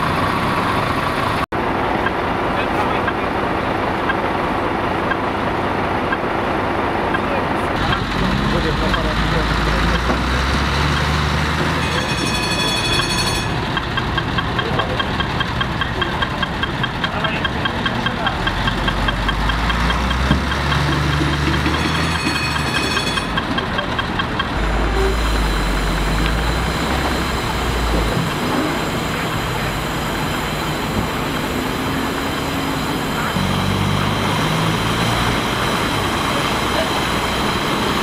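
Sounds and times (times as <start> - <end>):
vehicle engines idling: 0.0 - 38.0
rapid electronic beeping: 7.8 - 38.0.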